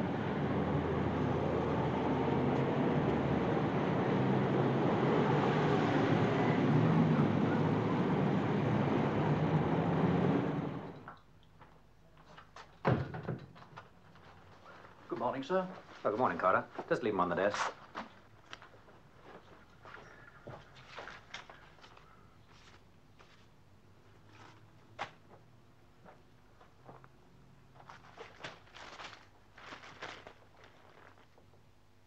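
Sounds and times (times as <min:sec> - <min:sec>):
street traffic: 0:00.0 - 0:11.2
paper rustling: 0:13.6 - 0:16.9, 0:27.7 - 0:31.5.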